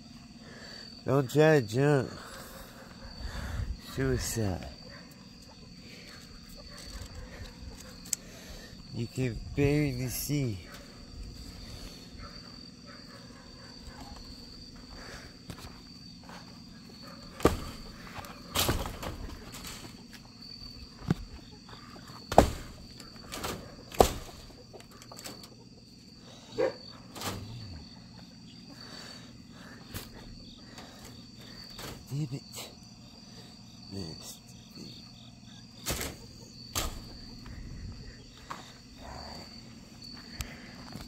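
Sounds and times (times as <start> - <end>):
night insects droning: 0.0 - 41.0
footsteps: 13.8 - 20.3.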